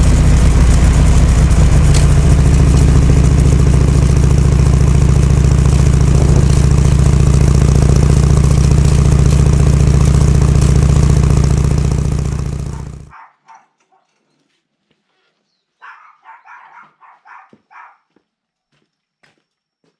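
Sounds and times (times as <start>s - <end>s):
motorcycle engine running: 0.0s - 13.1s.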